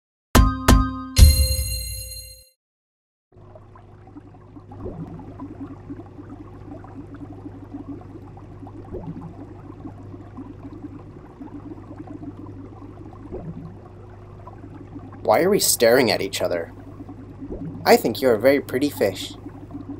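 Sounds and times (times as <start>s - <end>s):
short rising bubble: 3.4s - 15.3s, 16.7s - 18.0s
steady low hum: 3.4s - 19.9s
water bubbling and gurgling: 3.4s - 19.9s.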